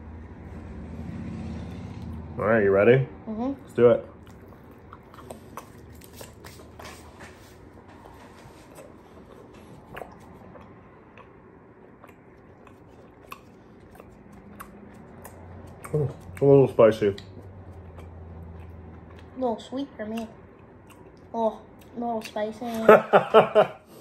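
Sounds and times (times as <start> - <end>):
people chewing candy: 3.6 - 19.4, 20.0 - 22.4
mouth clicks and smacks: 8.8 - 16.5.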